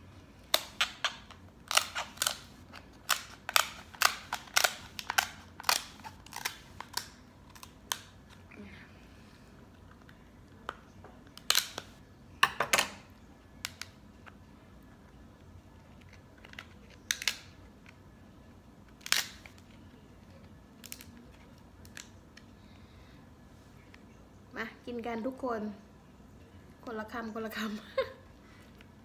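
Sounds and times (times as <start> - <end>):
shell crunching snaps: 16.1 - 18.0, 18.9 - 19.6.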